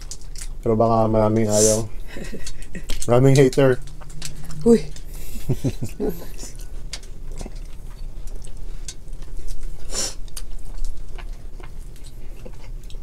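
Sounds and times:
steady low hum: 0:00.0 - 0:13.0
shells cracking: 0:02.2 - 0:09.0.

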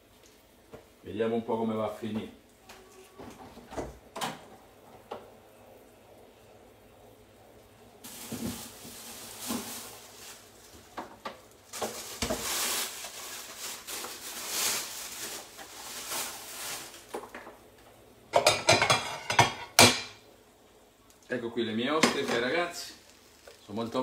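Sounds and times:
rustling hiss: 0:08.0 - 0:17.2
dishes clattering: 0:18.3 - 0:20.2.

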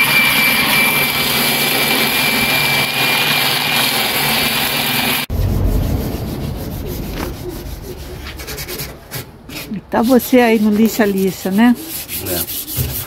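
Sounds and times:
electric disc sander whining: 0:00.0 - 0:08.4
hand sanding strokes: 0:05.3 - 0:13.0.

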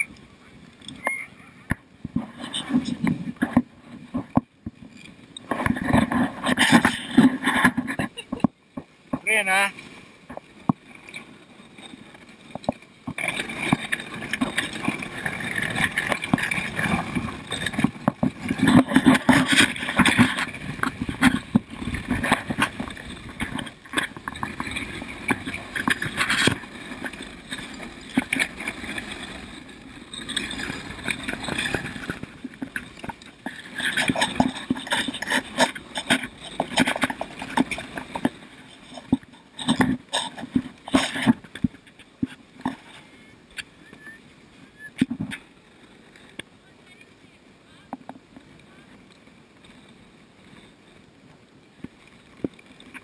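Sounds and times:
sled runners scraping snow: 0:00.0 - 0:53.0
sled frame clattering: 0:02.0 - 0:08.5, 0:10.3 - 0:43.0.

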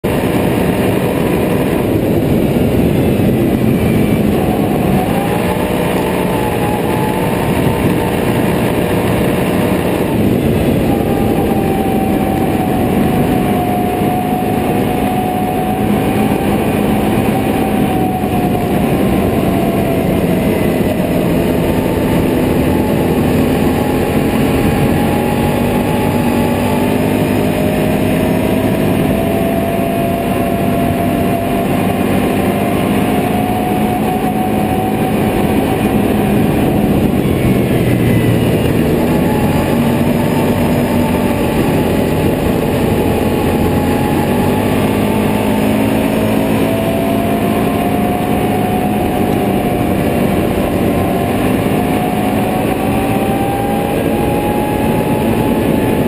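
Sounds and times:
atv engine running: 0:00.0 - 0:56.0
wind and road noise: 0:00.0 - 0:56.0.

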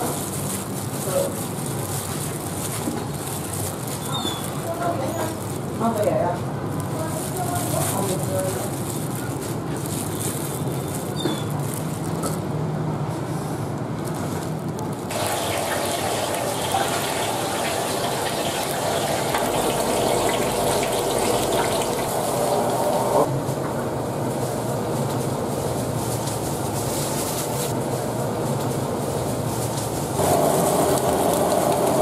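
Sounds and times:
gas burners roaring: 0:14.9 - 0:26.9, 0:27.5 - 0:32.0.

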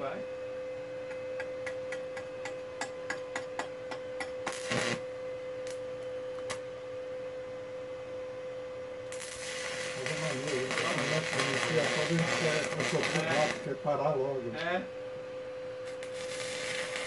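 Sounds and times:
steady hum: 0:00.0 - 0:17.0
welding electrode tapping on steel: 0:01.4 - 0:05.0, 0:09.1 - 0:13.7, 0:15.9 - 0:17.0
welding arc crackle: 0:04.4 - 0:05.0, 0:09.1 - 0:13.8, 0:15.8 - 0:17.0.

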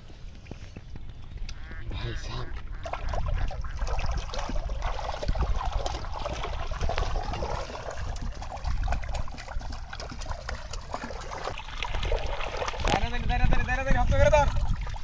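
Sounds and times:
fish splashing in water: 0:02.6 - 0:13.3.

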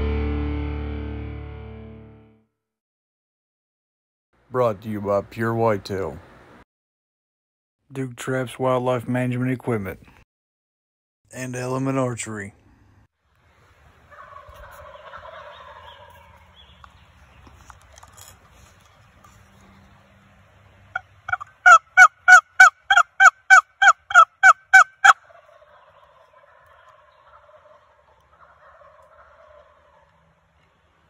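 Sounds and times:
sharp turkey yelps: 0:14.1 - 0:16.4, 0:20.9 - 0:30.2
distant turkey gobbling: 0:14.1 - 0:16.8, 0:20.9 - 0:30.7.

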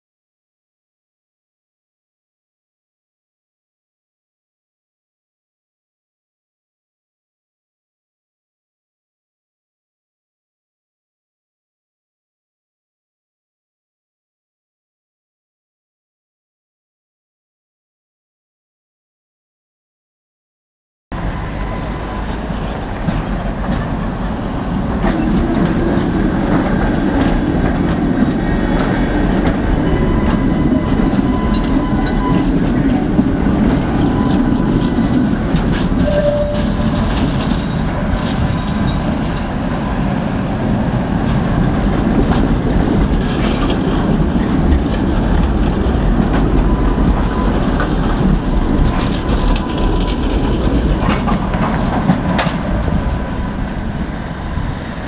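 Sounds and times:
tram rumbling past: 0:21.1 - 0:55.0
wheels clattering over rail joints: 0:21.2 - 0:54.0
faint wheel squeal: 0:36.0 - 0:39.0.

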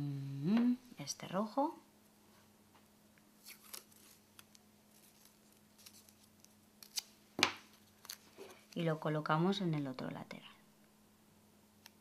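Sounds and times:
tape rustling: 0:03.4 - 0:08.9.

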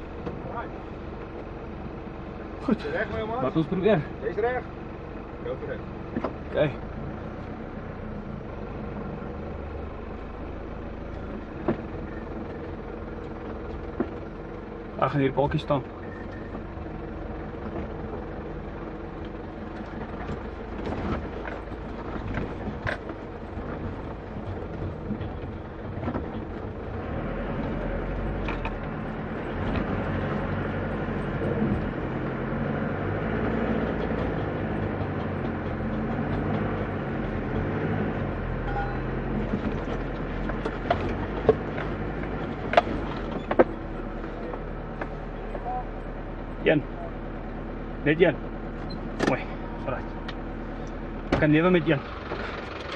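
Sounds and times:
diesel engine under load: 0:00.0 - 0:52.9
body and suspension knocks: 0:39.4 - 0:43.8.

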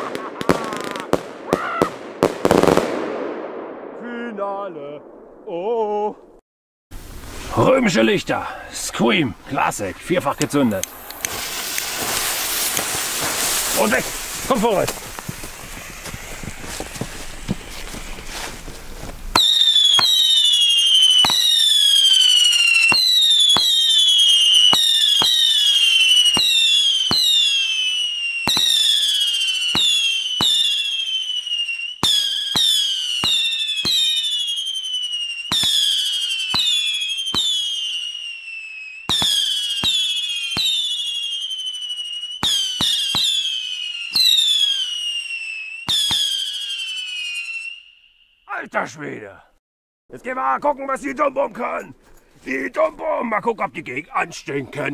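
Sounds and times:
fireworks popping and whistling: 0:00.0 - 0:03.2, 0:10.4 - 0:48.5.

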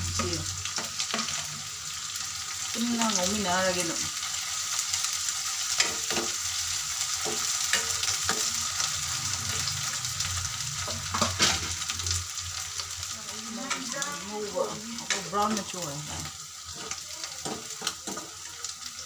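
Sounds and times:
food sizzling in oil: 0:00.0 - 0:19.0.

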